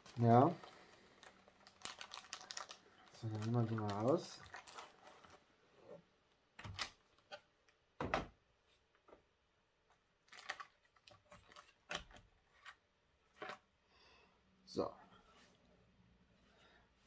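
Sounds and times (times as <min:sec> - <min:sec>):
plastic bag rustling: 0:00.0 - 0:05.4.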